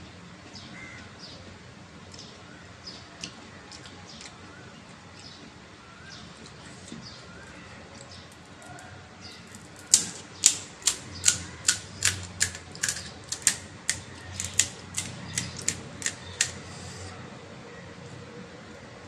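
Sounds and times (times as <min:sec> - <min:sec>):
crisp shells crunching: 0:09.4 - 0:16.6.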